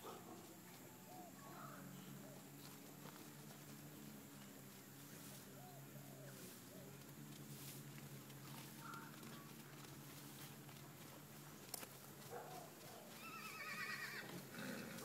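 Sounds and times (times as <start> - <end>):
horse whinnying: 13.2 - 15.0.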